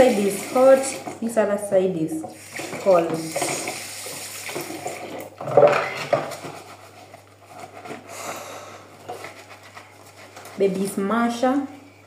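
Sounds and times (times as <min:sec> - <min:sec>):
tap water running: 0:00.0 - 0:06.7.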